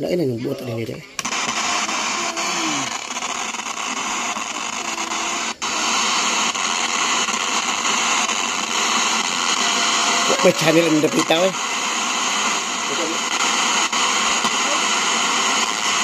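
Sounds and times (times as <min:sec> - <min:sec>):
faint snatches of radio sound: 0:00.6 - 0:16.0
radio static hissing: 0:00.6 - 0:16.0.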